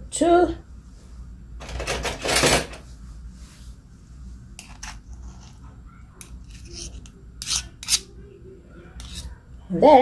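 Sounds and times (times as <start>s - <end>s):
ice cream scoop scraping: 6.2s - 8.1s, 9.0s - 9.3s.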